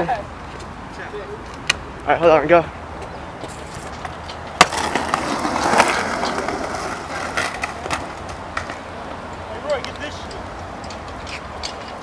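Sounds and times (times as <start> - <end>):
skateboard wheels rolling: 3.0 - 12.0
skateboard clacking on concrete: 3.6 - 9.0.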